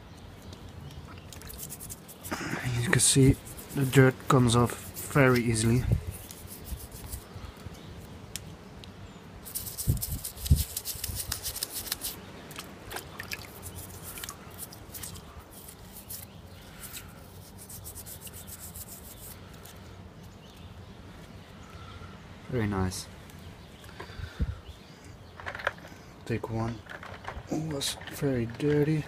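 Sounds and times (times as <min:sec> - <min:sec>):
toothbrush scrubbing metal cap: 0:01.4 - 0:07.3, 0:09.5 - 0:12.2.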